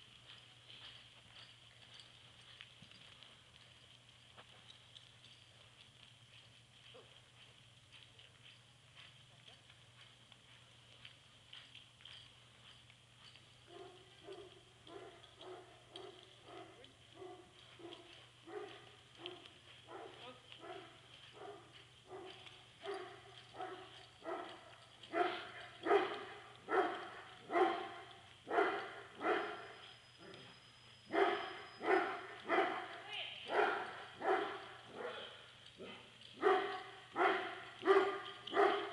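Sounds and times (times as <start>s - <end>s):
dog barking: 13.7s - 29.7s, 31.1s - 32.9s, 33.5s - 38.9s.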